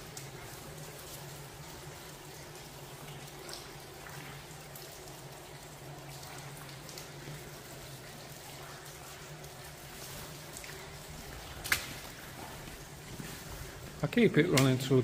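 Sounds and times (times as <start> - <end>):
low hum and hiss: 0.0 - 15.0
water dripping taps: 0.0 - 15.0.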